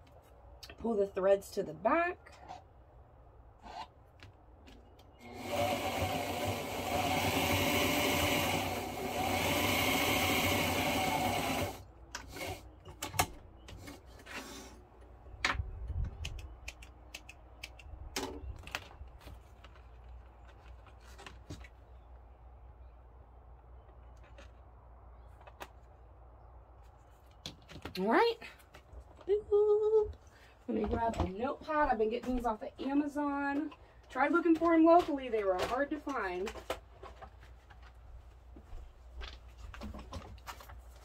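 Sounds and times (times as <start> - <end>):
sewing machine stitching: 5.2 - 12.6
clicks and rustles of vinyl: 16.0 - 22.0, 23.8 - 26.0, 34.4 - 38.4, 39.1 - 41.0.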